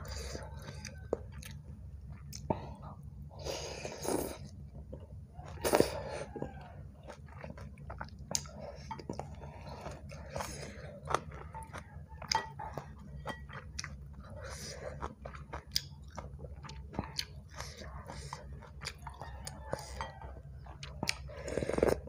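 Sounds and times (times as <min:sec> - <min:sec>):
slurping noodles: 0:03.4 - 0:04.5, 0:21.2 - 0:22.0
wet chewing: 0:03.8 - 0:22.0.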